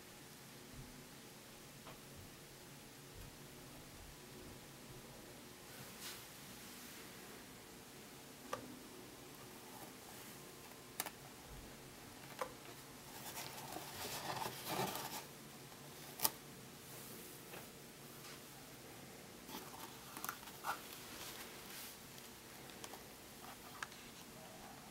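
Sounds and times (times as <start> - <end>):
rustling and scraping on paper towel: 13.1 - 15.3, 19.5 - 24.9.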